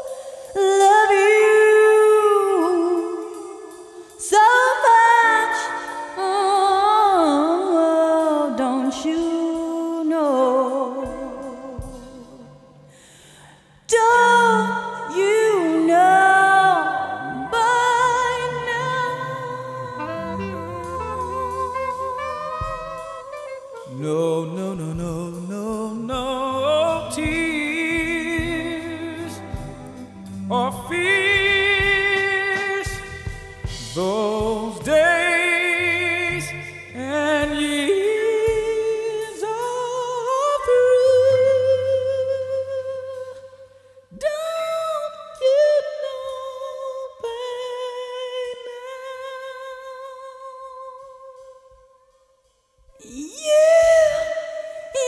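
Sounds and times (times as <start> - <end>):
jazz lead melody with vibrato: 15.2 - 43.5
low accompaniment: 17.2 - 39.0.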